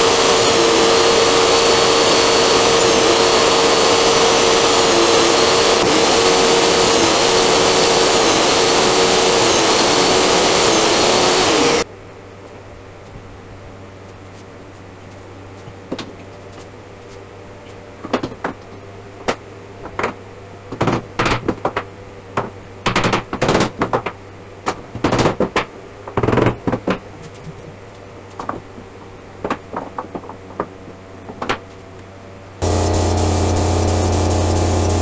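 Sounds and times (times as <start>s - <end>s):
steady low hum: 32.6s - 35.0s.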